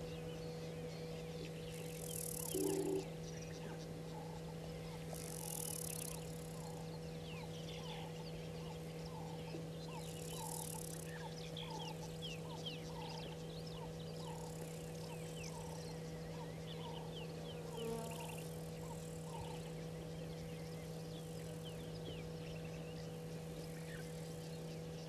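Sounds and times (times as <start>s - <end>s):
birds chirping and whistling: 0.0s - 17.6s
steady low hum: 0.0s - 25.0s
bird repeating low note: 1.4s - 6.9s.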